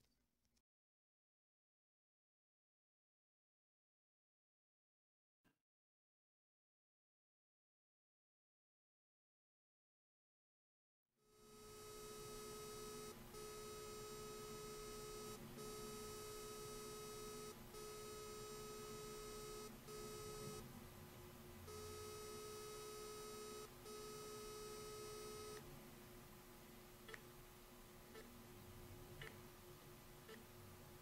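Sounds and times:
emergency pendant buzzing: 11.3s - 20.6s, 21.7s - 25.6s.

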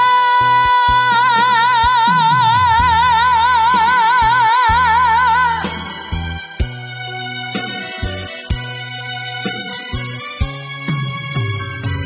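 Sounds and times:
boy singing long note: 0.0s - 5.6s
band backing music: 0.0s - 12.0s.

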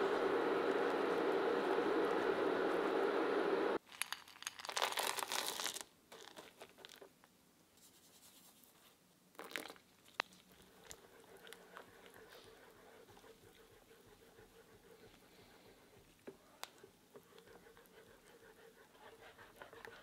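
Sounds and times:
chocolate pieces rustling into pan: 3.9s - 7.0s.

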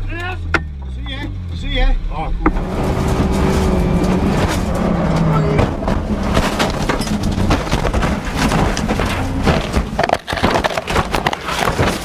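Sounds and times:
car engine: 0.0s - 12.0s
car crash bangs and crunches: 2.5s - 12.0s.

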